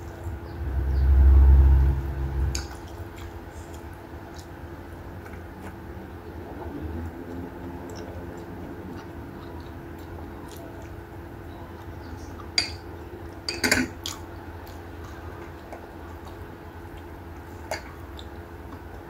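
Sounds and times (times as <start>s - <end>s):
steady low hum: 0.0s - 19.0s
dishes clinking: 12.6s - 12.9s, 13.5s - 14.0s.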